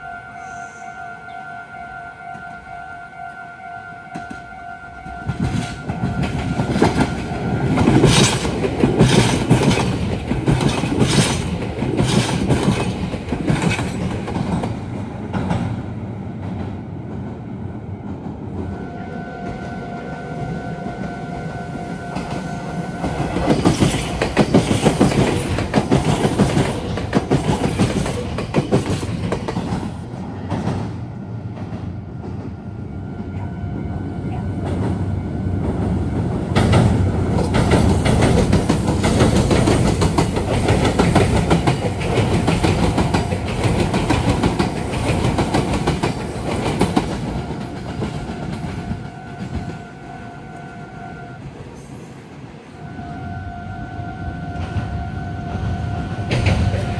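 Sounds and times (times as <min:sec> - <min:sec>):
level-crossing warning bell: 0:00.0 - 0:08.7, 0:18.6 - 0:26.6, 0:39.4 - 0:51.5, 0:52.8 - 0:56.9
electric trains passing: 0:00.0 - 0:56.9
wheels clattering over rail joints: 0:05.4 - 0:15.7.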